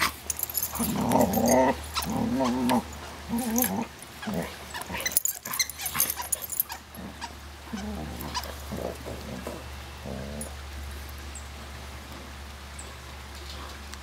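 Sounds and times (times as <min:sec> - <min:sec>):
claws clicking and scuffling: 0:00.0 - 0:10.5
dogs play growling: 0:00.0 - 0:11.0.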